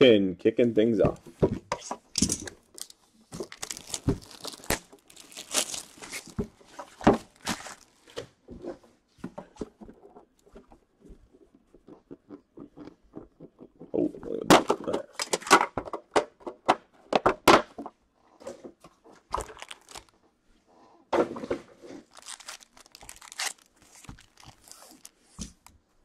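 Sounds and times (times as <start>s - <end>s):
plastic wrap crinkling and tearing: 2.4s - 8.2s, 19.3s - 20.2s, 22.0s - 25.7s.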